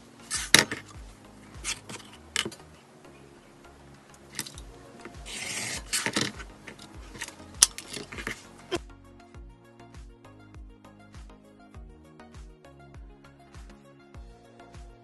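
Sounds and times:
faint background music: 0.0s - 15.0s.

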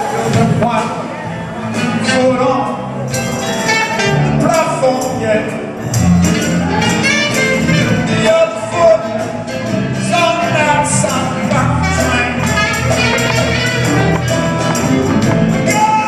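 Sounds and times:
congas: 0.0s - 16.0s
drums: 0.0s - 16.0s
electric bass: 0.0s - 16.0s
alto saxophone: 3.1s - 4.6s, 6.2s - 8.2s, 11.6s - 16.0s.

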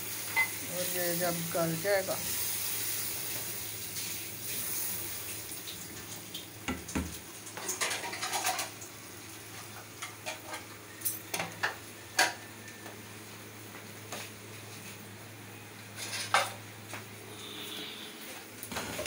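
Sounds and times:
water hissing in hot pot: 0.0s - 6.6s.

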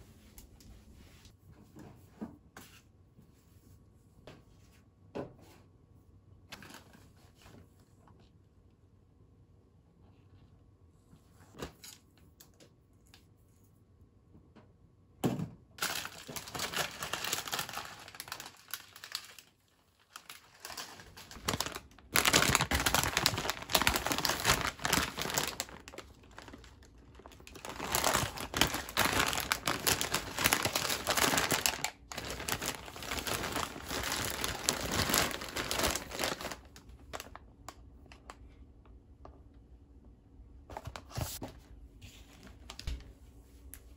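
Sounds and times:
plastic packaging crinkling: 15.8s - 37.4s.

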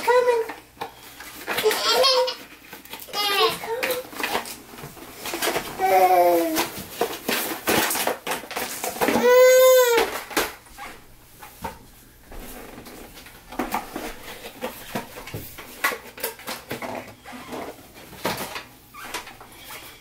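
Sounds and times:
babies whimpering: 5.8s - 6.7s.

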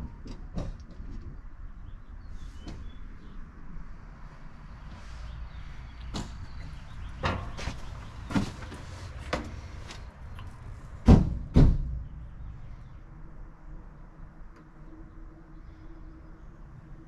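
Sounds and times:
truck door banging shut: 11.0s - 12.0s.

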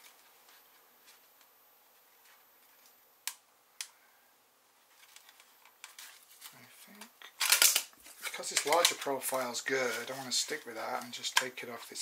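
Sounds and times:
sharp plastic clicks: 7.4s - 9.1s.

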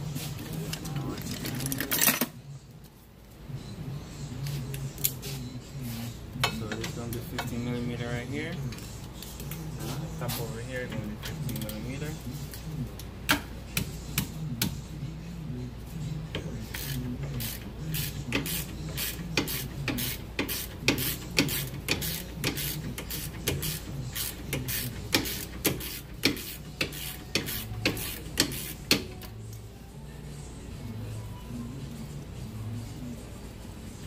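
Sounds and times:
hand ratchet clicking: 16.7s - 29.3s.

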